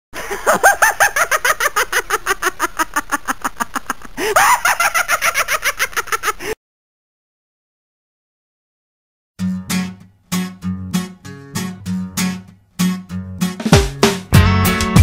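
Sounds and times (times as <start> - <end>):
shrill rapid cackle: 0.3 - 6.6.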